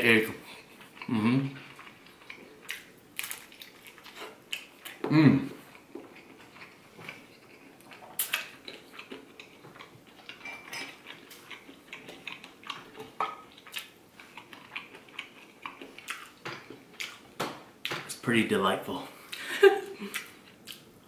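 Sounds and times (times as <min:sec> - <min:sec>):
wet chewing and lip smacks: 0:05.7 - 0:17.2, 0:20.1 - 0:20.9.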